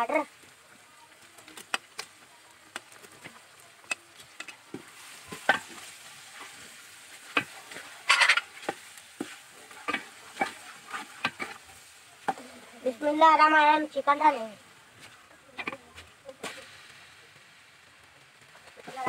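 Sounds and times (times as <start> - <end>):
frying sizzle: 0.0 - 19.0
spatula scraping metal pot: 3.8 - 11.7.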